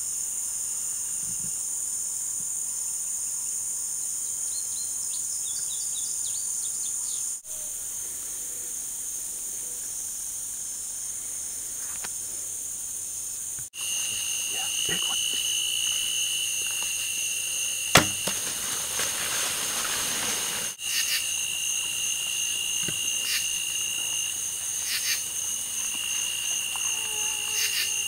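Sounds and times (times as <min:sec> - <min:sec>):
high-pitched insect chorus: 0:00.0 - 0:28.0.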